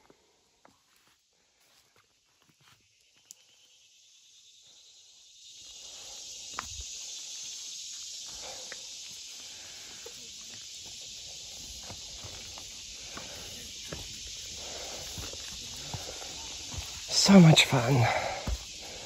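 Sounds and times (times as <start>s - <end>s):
footsteps on rock: 10.5s - 19.0s.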